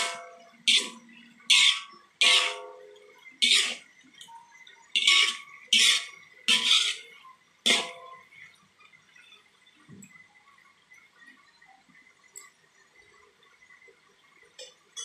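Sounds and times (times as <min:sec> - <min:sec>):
metal spoon scraping a wok: 0:00.0 - 0:03.9, 0:05.0 - 0:08.2.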